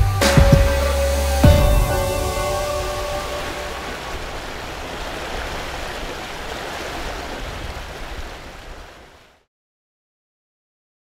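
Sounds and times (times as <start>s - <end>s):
water rushing in boat wash: 0.3s - 9.5s
low rumble: 1.4s - 5.4s.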